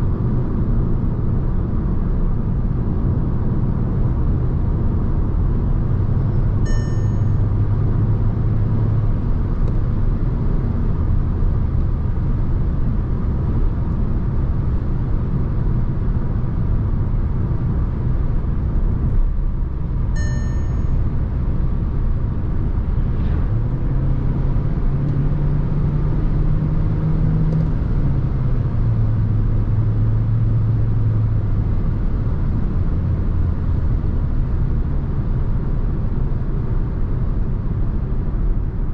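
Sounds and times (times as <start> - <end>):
car engine and road noise: 0.0 - 38.9
short electronic chime: 6.7 - 7.5, 20.2 - 21.0.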